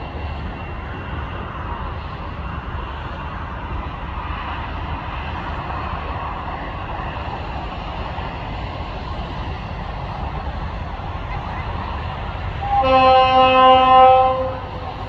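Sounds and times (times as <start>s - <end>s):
locomotive horn blast: 12.6s - 14.9s.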